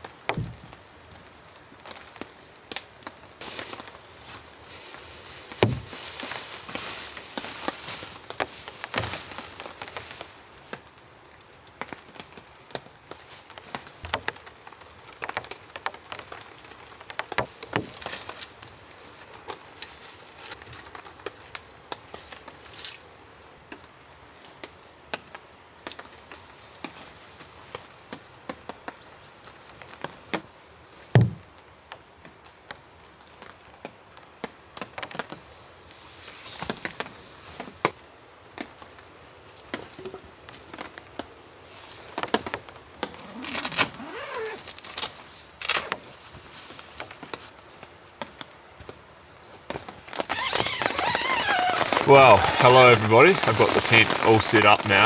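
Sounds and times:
nylon fabric rustling: 3.4 - 10.4, 41.6 - 47.5, 50.0 - 55.0
metallic clinks of tent stakes: 17.8 - 23.1.

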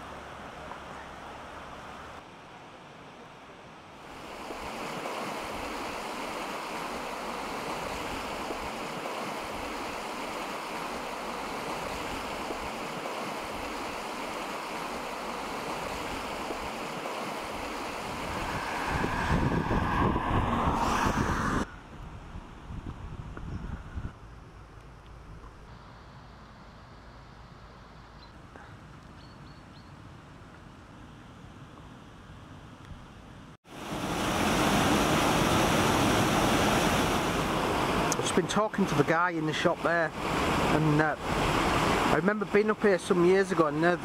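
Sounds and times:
floodwater rushing: 4.0 - 21.6, 33.7 - 44.0
wind buffeting microphone: 17.4 - 24.3.

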